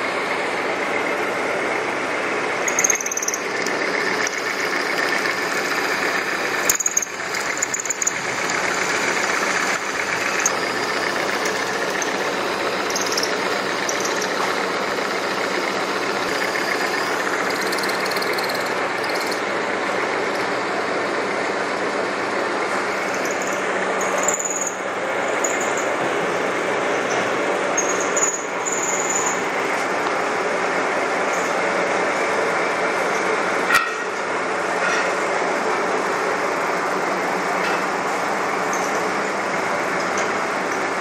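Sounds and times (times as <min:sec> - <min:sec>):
high squeals: 0:02.7 - 0:15.1, 0:16.1 - 0:19.5
milling machine cutting metal: 0:02.7 - 0:19.5.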